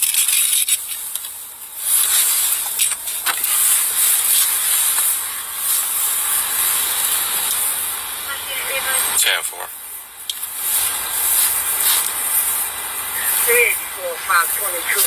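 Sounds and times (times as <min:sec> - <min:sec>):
rushing air hiss in car: 0:01.8 - 0:08.1, 0:10.4 - 0:13.7.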